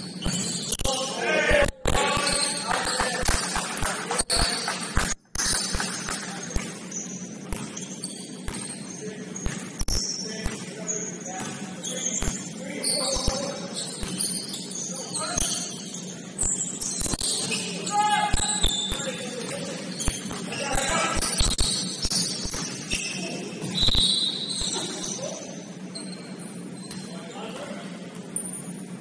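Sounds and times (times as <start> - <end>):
sneakers squeaking: 0.0 - 1.2, 1.9 - 29.0
players' voices: 0.8 - 5.0, 8.7 - 23.8.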